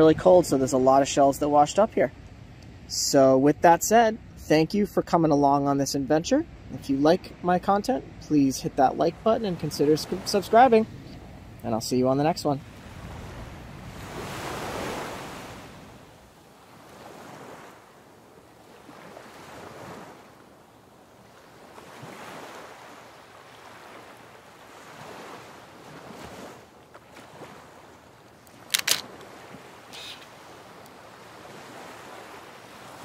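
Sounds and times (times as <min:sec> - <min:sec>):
small waves washing ashore: 0:06.0 - 0:33.0
sharp double click: 0:28.6 - 0:29.1.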